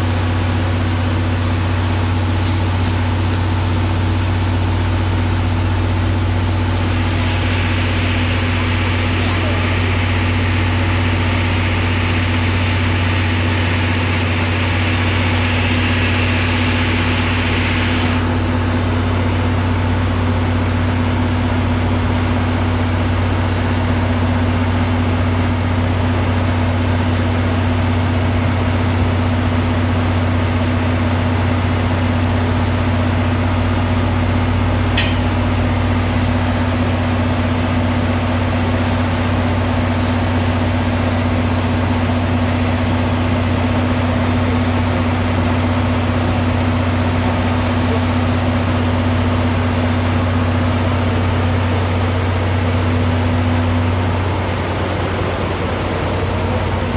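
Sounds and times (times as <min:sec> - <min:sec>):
diesel engine idling: 0:00.0 - 0:56.9
sharp click: 0:35.0 - 0:35.3.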